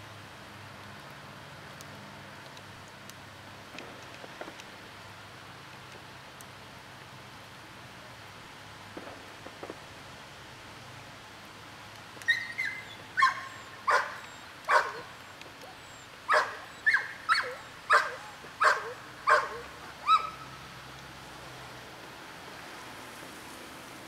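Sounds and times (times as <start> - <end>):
dog barking: 12.3 - 15.2, 16.3 - 20.4.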